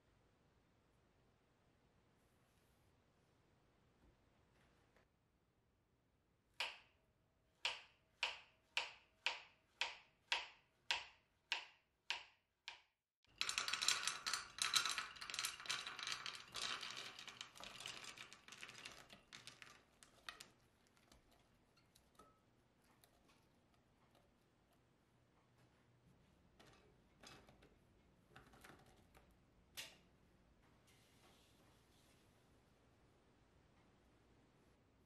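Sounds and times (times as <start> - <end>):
berries clattering into metal pot: 13.3 - 23.3.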